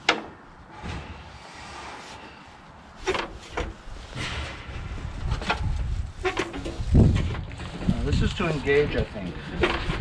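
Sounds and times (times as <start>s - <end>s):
low rumbling: 3.7s - 8.7s.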